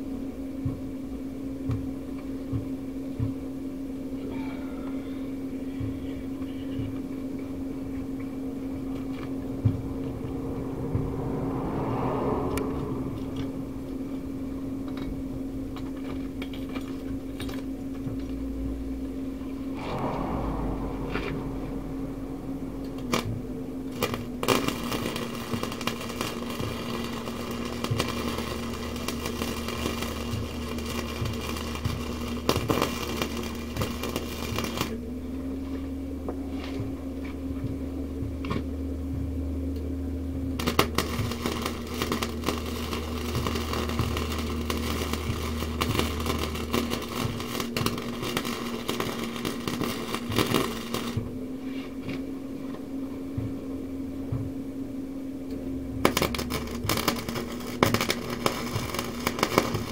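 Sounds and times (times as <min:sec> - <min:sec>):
steady hum: 0:00.0 - 0:59.9
electric arc welding crackle: 0:22.9 - 0:35.0, 0:40.6 - 0:51.3, 0:56.0 - 0:59.9.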